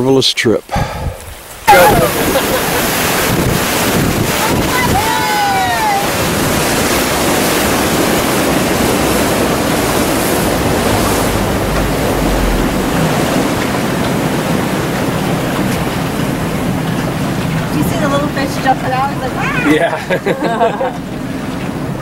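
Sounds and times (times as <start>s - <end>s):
water noise: 0.0s - 22.0s
wind buffeting microphone: 0.7s - 22.0s
low rumble: 8.4s - 16.8s.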